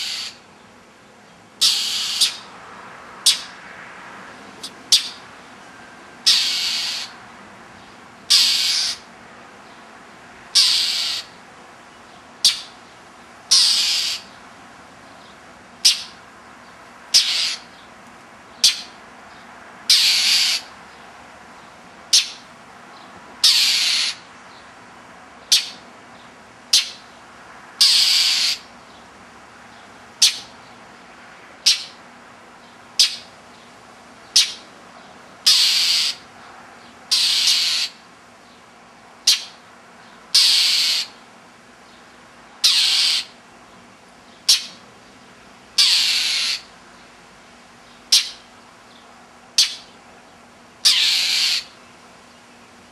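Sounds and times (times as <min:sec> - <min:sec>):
mockingbird harsh scolding calls: 0:00.0 - 0:00.5, 0:01.6 - 0:02.5, 0:03.2 - 0:03.6, 0:04.6 - 0:05.3, 0:06.2 - 0:07.2, 0:08.2 - 0:09.1, 0:10.5 - 0:11.4, 0:12.4 - 0:12.9, 0:13.5 - 0:14.4, 0:15.2 - 0:16.2, 0:17.1 - 0:17.9, 0:18.5 - 0:19.0, 0:19.9 - 0:20.8, 0:22.1 - 0:22.5, 0:23.4 - 0:24.3, 0:25.4 - 0:25.9, 0:26.7 - 0:27.2, 0:27.8 - 0:28.8, 0:30.2 - 0:30.6, 0:31.6 - 0:32.0, 0:33.0 - 0:33.4, 0:34.2 - 0:34.7, 0:35.4 - 0:36.3, 0:37.1 - 0:38.1, 0:39.2 - 0:41.3, 0:42.6 - 0:43.4, 0:44.3 - 0:44.8, 0:45.7 - 0:46.8, 0:48.0 - 0:48.6, 0:49.6 - 0:50.0, 0:50.8 - 0:51.8.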